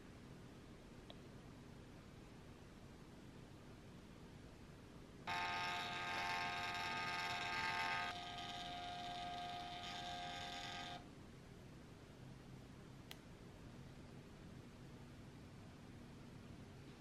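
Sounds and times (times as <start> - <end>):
label printer motor whirring: 5.3 - 11.1.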